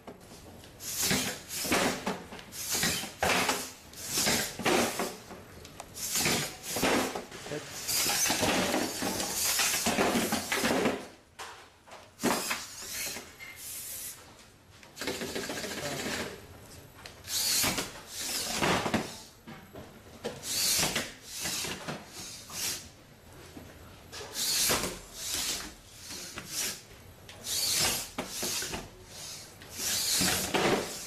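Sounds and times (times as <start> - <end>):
robot servos whirring: 7.8 - 10.6, 12.2 - 14.2, 17.3 - 18.6, 20.4 - 22.8, 24.3 - 26.8, 27.4 - 31.0.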